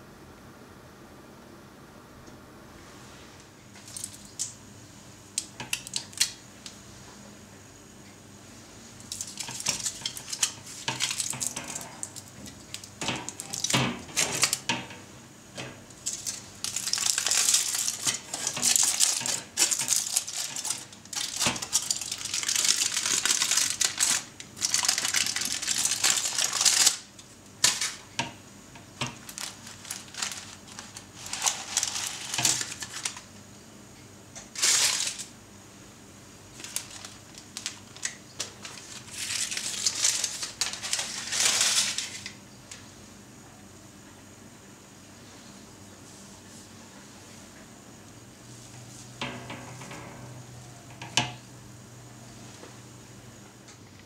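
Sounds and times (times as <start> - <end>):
aluminium foil crinkling: 3.8 - 4.6, 5.4 - 6.8, 9.0 - 14.9, 15.6 - 28.3, 29.0 - 33.4, 34.5 - 35.4, 36.5 - 42.8.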